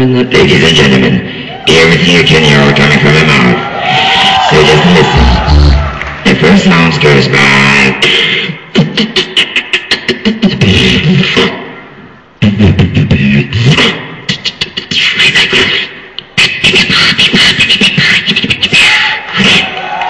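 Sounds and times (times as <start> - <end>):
beatboxing: 4.5 - 19.9.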